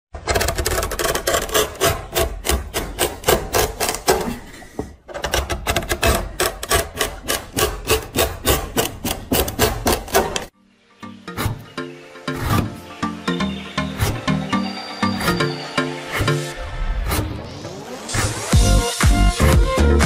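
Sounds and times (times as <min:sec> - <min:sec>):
chisel cutting into wood: 0:00.2 - 0:04.4, 0:05.2 - 0:10.5.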